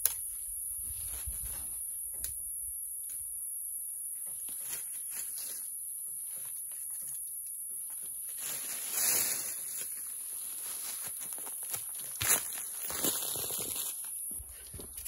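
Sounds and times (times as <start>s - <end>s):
high-pitched insect chorus: 0.0s - 15.0s
rustle: 8.0s - 11.6s.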